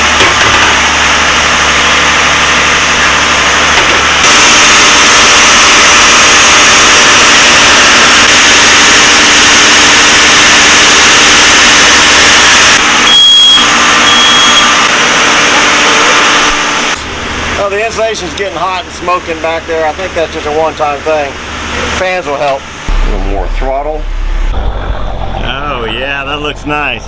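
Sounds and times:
diesel engine running steadily: 0.0 - 5.4, 22.7 - 27.0.

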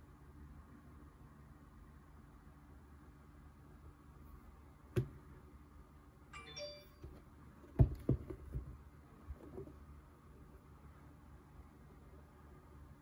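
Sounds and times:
high ringing tone: 6.3 - 7.1
dull knocks and taps of prints: 7.0 - 9.8.

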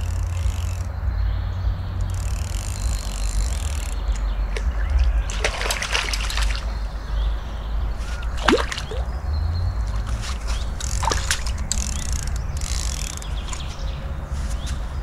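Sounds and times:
water sloshing against boat: 2.8 - 14.8
sharp splashes: 4.5 - 7.0, 8.0 - 11.7.

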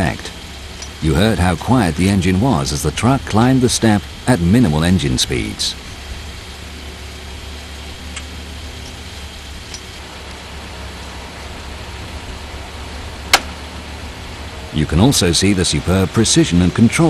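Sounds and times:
faint hiss: 0.0 - 17.0
forklift engine idling: 0.0 - 17.0.

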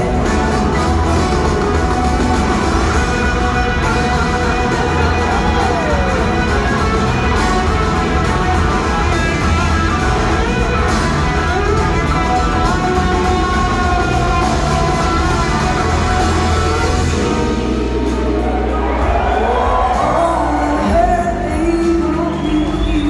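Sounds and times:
electric guitar lead: 0.0 - 22.8
live rock band: 0.0 - 23.0.

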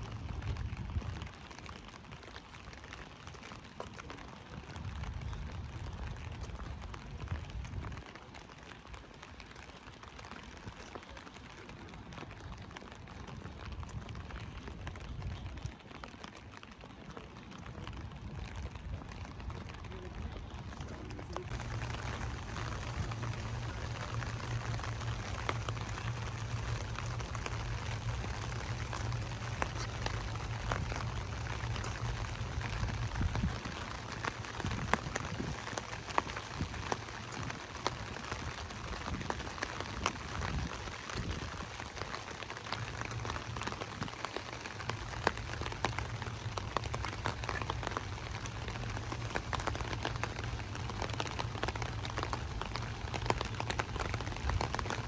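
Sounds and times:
light rain falling: 0.0 - 55.0
low hum: 20.9 - 37.4.

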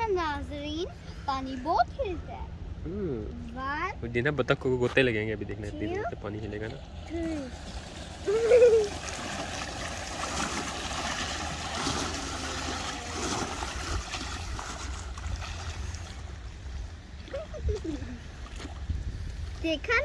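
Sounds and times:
wake waves splashing on riverbank: 6.6 - 19.9.

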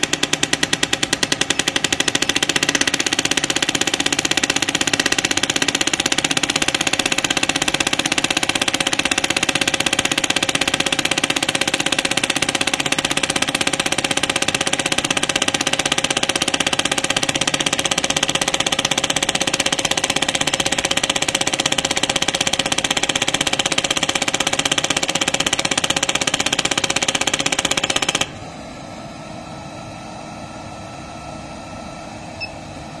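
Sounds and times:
rapid sharp taps: 0.0 - 28.3
steady hum: 25.4 - 33.0.

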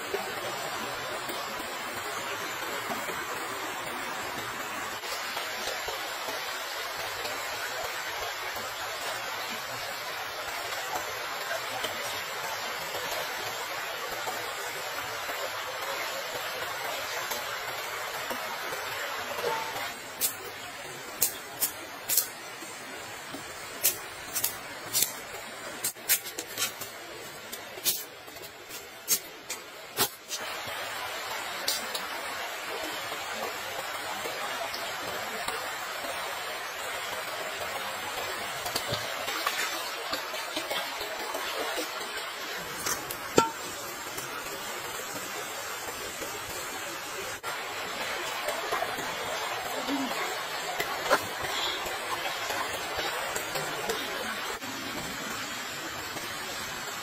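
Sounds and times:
steady hiss: 0.0 - 57.0
stream rushing: 0.0 - 57.0
metal clink on a wok: 43.4 - 43.6.

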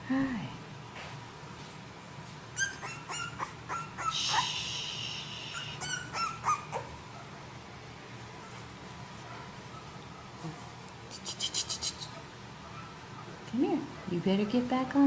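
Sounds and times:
puppies yipping and squealing: 2.5 - 4.5, 5.5 - 7.0.

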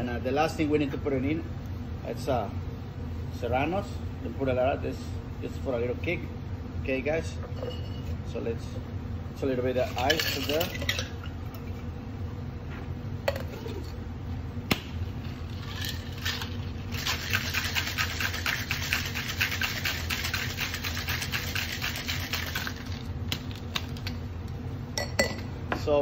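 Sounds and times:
ice rattling in cocktail shaker: 9.9 - 11.2, 15.4 - 24.1.

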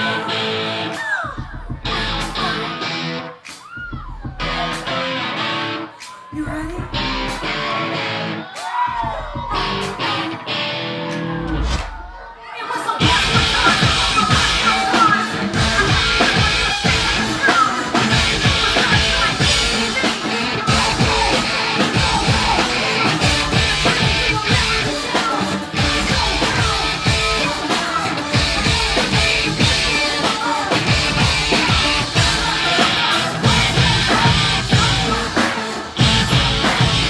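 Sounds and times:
electric guitar: 0.0 - 1.2, 1.8 - 3.5, 4.4 - 6.1, 6.8 - 8.6, 9.5 - 11.8, 13.0 - 37.0
woman singing: 0.0 - 3.2, 6.0 - 7.8, 12.5 - 37.0
driving drumbeat: 0.9 - 5.3, 5.9 - 7.9, 8.5 - 10.2, 13.0 - 37.0.

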